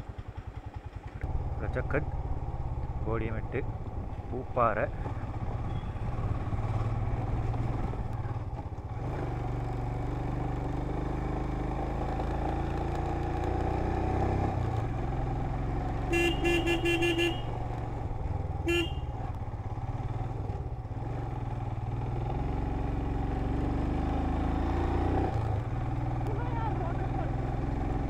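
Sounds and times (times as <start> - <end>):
motorcycle engine running: 0.0 - 28.0
short horn beeps: 5.6 - 6.1, 16.1 - 17.6, 18.7 - 19.2.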